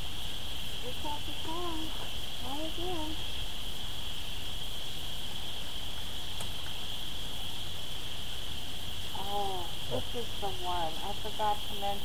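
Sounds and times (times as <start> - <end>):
high-pitched buzzing drone: 0.0 - 3.3.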